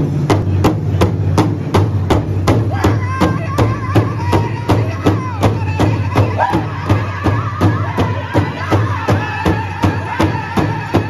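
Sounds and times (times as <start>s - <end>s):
large drum steady beat: 0.0s - 11.0s
high voice singing: 2.7s - 11.0s.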